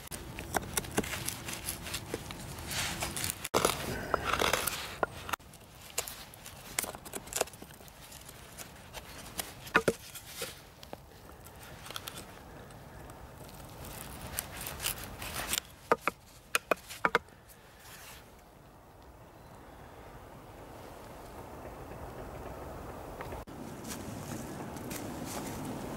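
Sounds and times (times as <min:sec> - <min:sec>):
knife cutting and scraping wood: 0:00.0 - 0:18.4.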